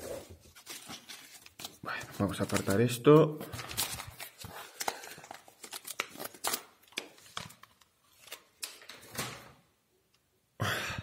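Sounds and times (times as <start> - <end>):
paper folders rustling: 0.0 - 9.6.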